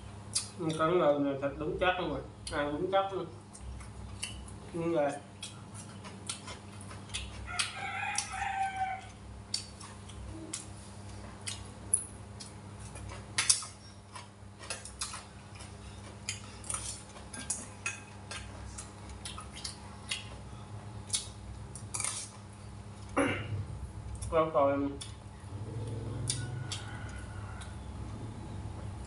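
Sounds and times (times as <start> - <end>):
rooster crowing: 7.5 - 9.2, 25.7 - 28.6
low hum: 14.8 - 29.0.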